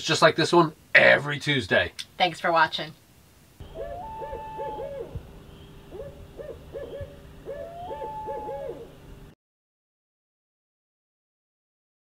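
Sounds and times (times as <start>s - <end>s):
owl hooting: 3.6s - 9.0s
steady low hum: 3.6s - 9.4s.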